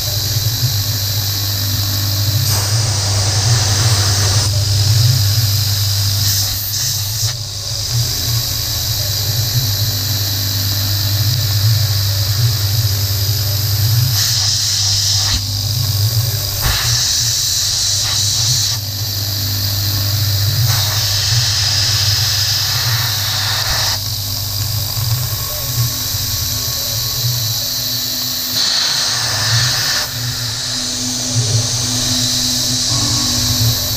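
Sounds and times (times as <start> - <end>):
high-pitched metal cutting: 0.0 - 33.9
milling machine motor hum: 0.0 - 33.9
coolant spray hiss: 0.3 - 9.6, 10.9 - 33.9.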